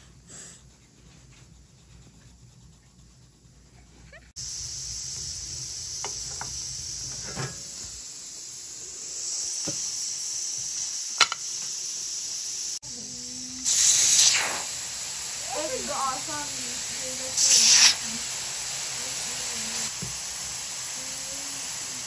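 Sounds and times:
pressure cooker valve hissing: 4.4s - 22.0s.

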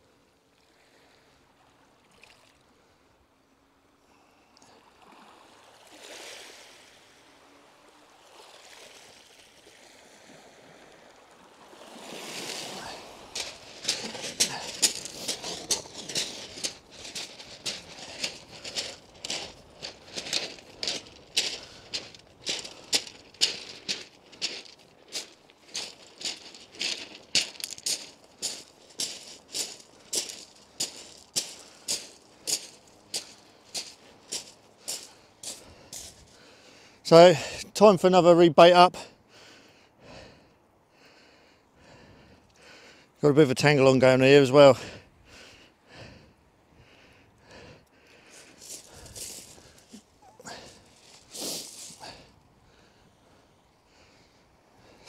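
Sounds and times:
small waves washing onto shingle: 4.8s - 38.0s, 48.1s - 52.3s
footsteps crunching on pebbles: 12.2s - 36.5s, 48.2s - 52.4s.

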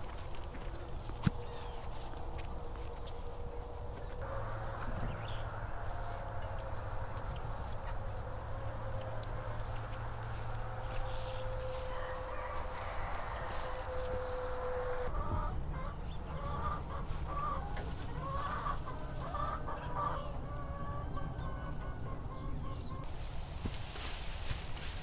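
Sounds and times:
steady low rumble: 0.0s - 17.5s
chickens clucking: 0.0s - 25.0s.

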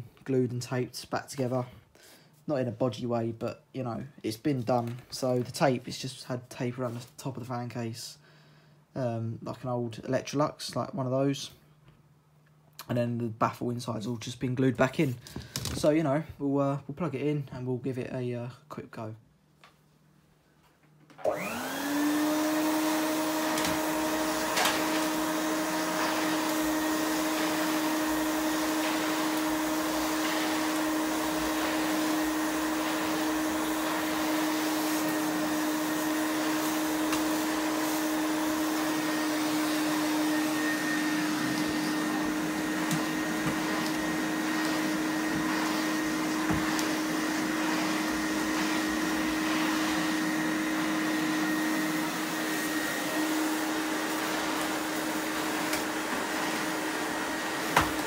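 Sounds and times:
vacuum cleaner motor whining: 21.1s - 58.0s
floor tool pushed over carpet: 21.2s - 58.0s.

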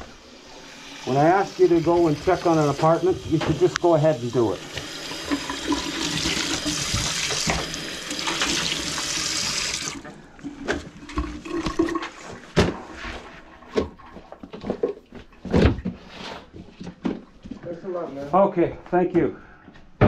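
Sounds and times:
faucet running into metal sink: 0.0s - 10.2s.

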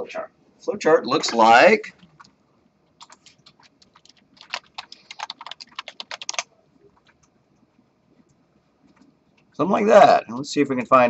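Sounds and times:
computer keyboard typing: 1.9s - 2.3s, 2.9s - 7.3s.

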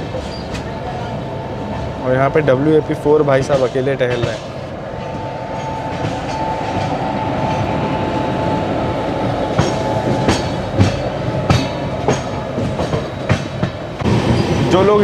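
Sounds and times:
train coach rumbling: 0.0s - 15.0s
wheels clacking over rail joints: 2.9s - 7.9s, 9.0s - 15.0s.

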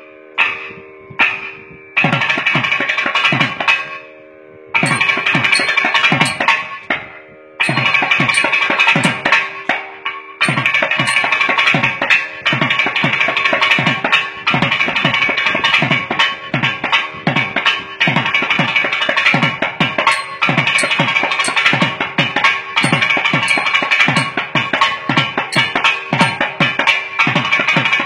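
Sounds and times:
barrel drum strokes: 4.8s - 6.8s, 7.6s - 9.4s, 10.4s - 11.5s, 20.1s - 22.0s, 22.8s - 24.7s, 25.6s - 26.7s.

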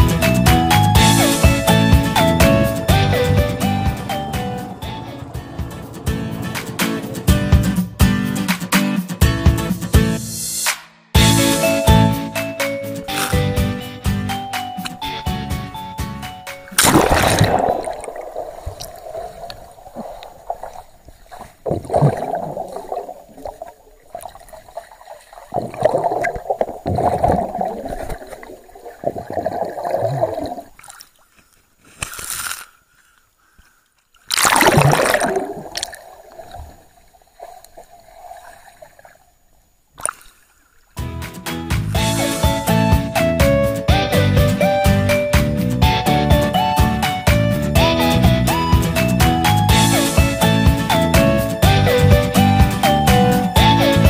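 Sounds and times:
water sloshing and splashing: 16.6s - 41.0s.

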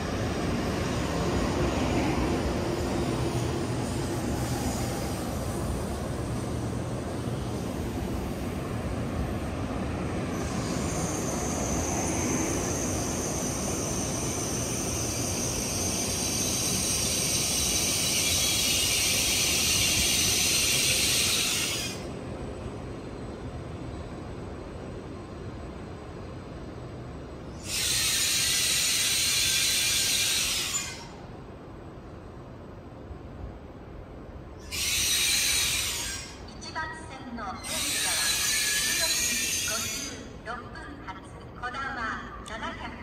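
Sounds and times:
train rumbling slowly: 0.0s - 43.0s
hiss: 10.4s - 22.0s, 27.6s - 31.2s, 34.6s - 36.4s, 37.7s - 40.2s.

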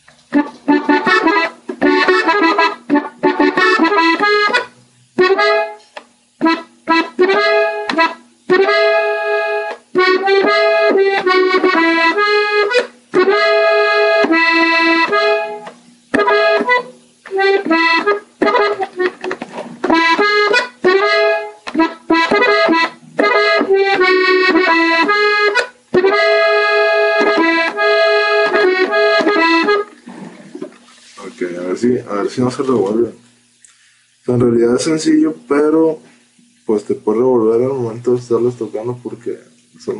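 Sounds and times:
button accordion melody: 0.3s - 5.8s, 6.4s - 30.0s.

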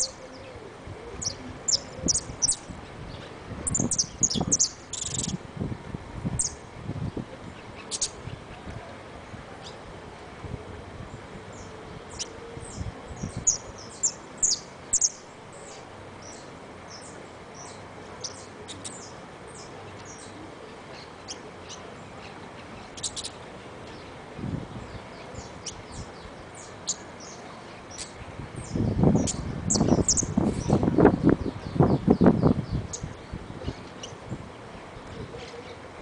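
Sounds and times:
finch chirping: 1.2s - 5.4s, 7.8s - 8.2s, 13.2s - 20.4s, 22.7s - 23.4s, 25.3s - 30.8s
bird chirring: 3.7s - 5.4s.

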